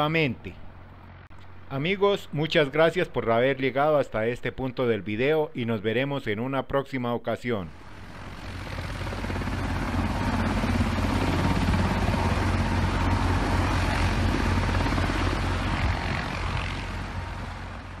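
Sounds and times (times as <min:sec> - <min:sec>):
helicopter engines and rotor running: 0:07.7 - 0:18.0.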